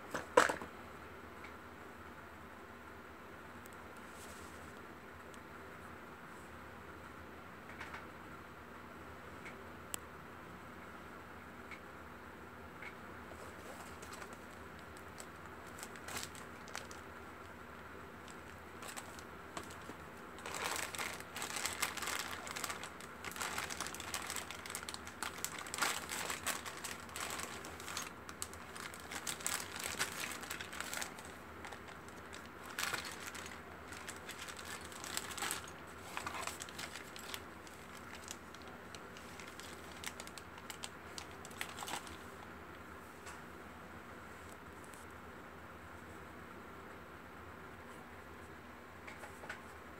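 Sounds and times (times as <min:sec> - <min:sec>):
plastic bags crinkling: 0:13.3 - 0:17.1, 0:18.2 - 0:42.4.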